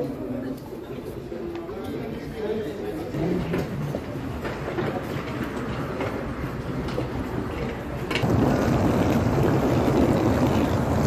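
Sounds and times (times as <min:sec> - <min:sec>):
suitcases rolling over asphalt: 0:03.2 - 0:11.0
suitcase wheels clicking: 0:03.3 - 0:11.0.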